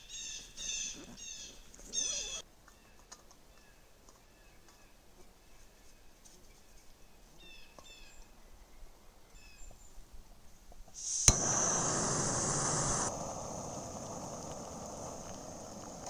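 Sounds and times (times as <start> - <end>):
faint bird chirps: 0.0 - 10.0
gas valve hissing: 11.0 - 16.0
stove burner hissing: 11.0 - 16.0.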